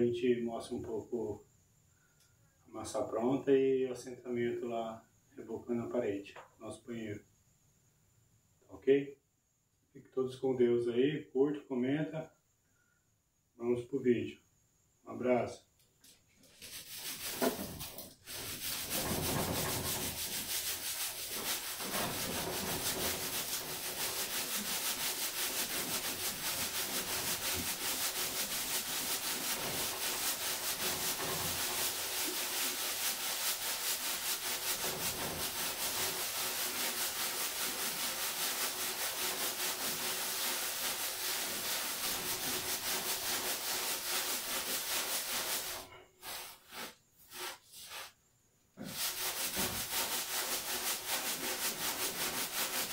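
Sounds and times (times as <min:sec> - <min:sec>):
sand rasping in a sieve: 0:16.4 - 0:52.9.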